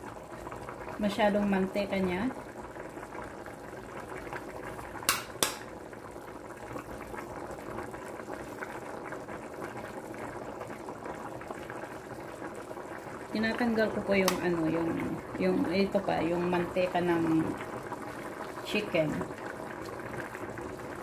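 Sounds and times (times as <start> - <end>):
soup boiling and bubbling: 0.0 - 21.0
ladle clicking against pot: 5.1 - 5.7, 14.2 - 14.4.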